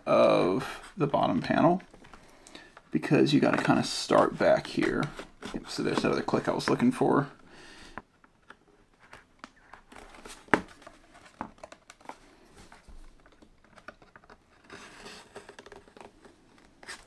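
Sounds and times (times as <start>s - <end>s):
plastic pick scraping seam: 3.4s - 9.8s.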